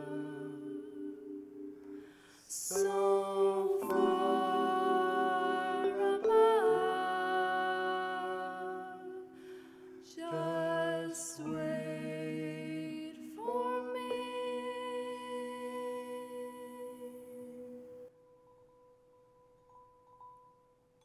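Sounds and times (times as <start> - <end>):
wordless sung melody: 0.0 - 18.2
vibraphone chords: 2.7 - 12.8.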